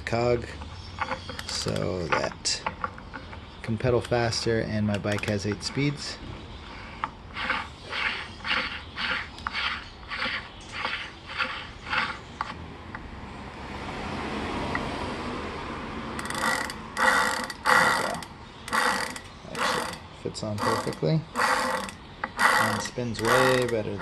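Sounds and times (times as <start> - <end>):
bicycle freewheel ratcheting: 7.3 - 12.2, 16.2 - 20.0, 20.6 - 24.0.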